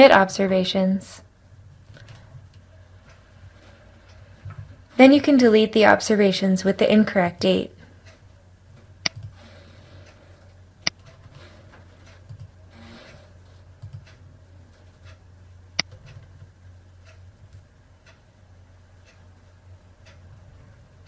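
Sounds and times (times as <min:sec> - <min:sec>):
low steady hum: 0:00.0 - 0:21.0
computer mouse clicks: 0:09.0 - 0:10.2, 0:10.8 - 0:14.2.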